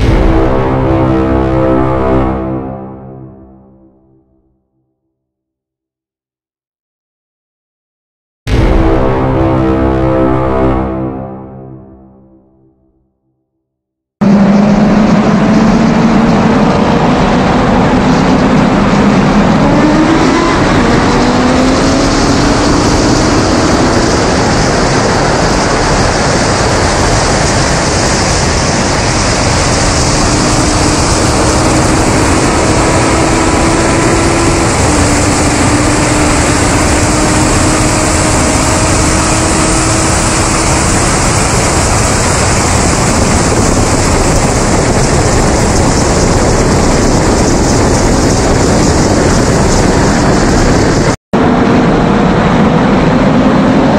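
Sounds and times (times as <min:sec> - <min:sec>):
loud wind rush: 0:00.0 - 0:04.0, 0:14.2 - 0:53.9
car engine pulling hard: 0:14.2 - 0:53.9.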